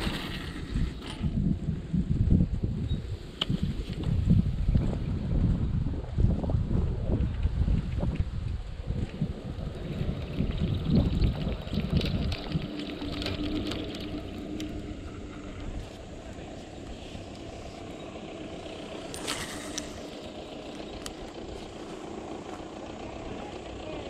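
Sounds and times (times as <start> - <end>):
wind buffeting microphone: 0.0 - 22.1
distant engine humming: 7.5 - 24.0.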